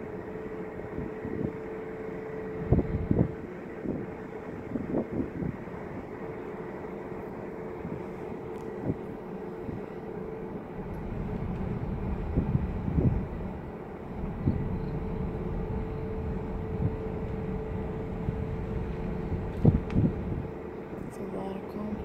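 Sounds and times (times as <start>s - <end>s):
car engine and tyre rumble: 0.0s - 22.0s.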